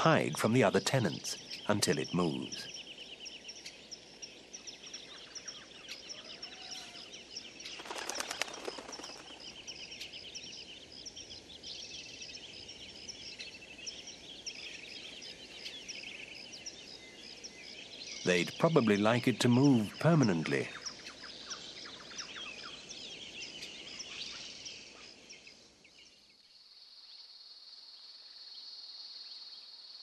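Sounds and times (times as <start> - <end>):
high chirping calls: 4.7 - 10.4
rapid rattling call: 7.6 - 9.7.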